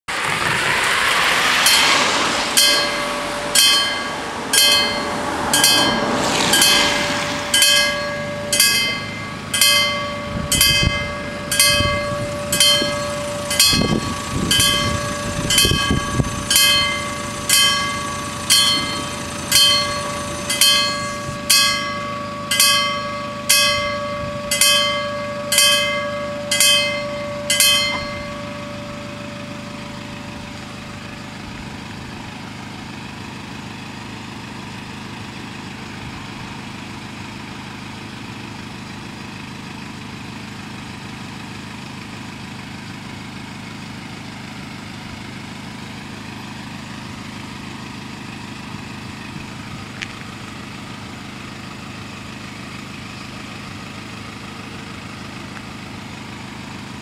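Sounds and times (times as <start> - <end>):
car driving past: 0.1 - 31.5
level-crossing warning bells: 0.1 - 57.0
steady hum: 2.5 - 31.9.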